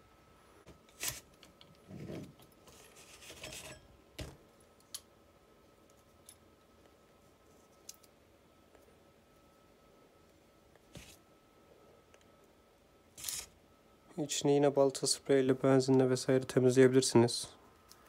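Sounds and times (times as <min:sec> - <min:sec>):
metal parts scraping: 0:02.7 - 0:03.8, 0:13.2 - 0:13.5.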